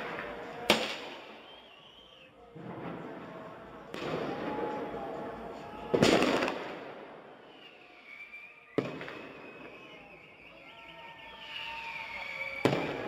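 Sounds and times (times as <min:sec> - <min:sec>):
firecracker bangs: 0:00.0 - 0:01.6, 0:02.6 - 0:07.4, 0:08.8 - 0:09.9, 0:12.6 - 0:13.0.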